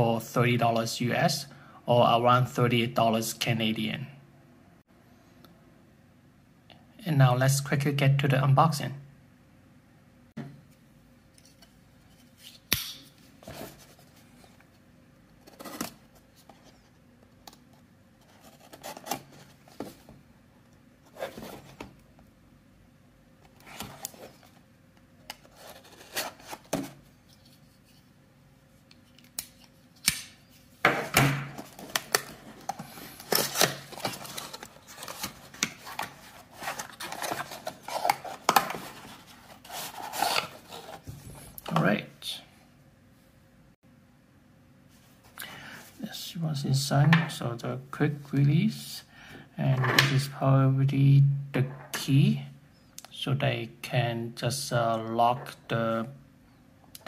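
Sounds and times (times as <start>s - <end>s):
rubbing and scraping of cardboard: 34.0s - 41.2s.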